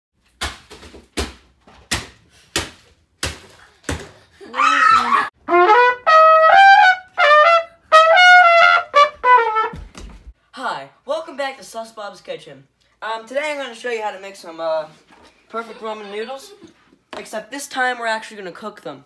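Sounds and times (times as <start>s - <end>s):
trumpet jingle: 5.4s - 9.8s.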